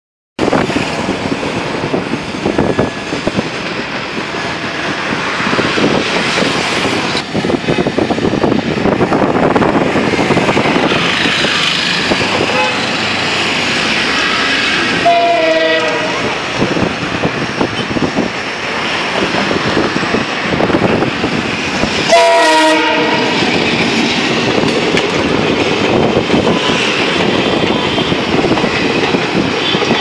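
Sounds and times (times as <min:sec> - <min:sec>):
dense road traffic: 0:00.4 - 0:30.0
vehicle horn: 0:12.4 - 0:13.0, 0:15.0 - 0:16.2, 0:22.1 - 0:23.4.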